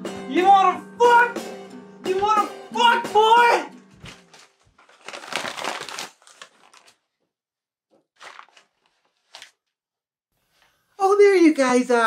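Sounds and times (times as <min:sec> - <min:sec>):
rustling and crinkling: 0:04.0 - 0:07.3, 0:07.9 - 0:09.7.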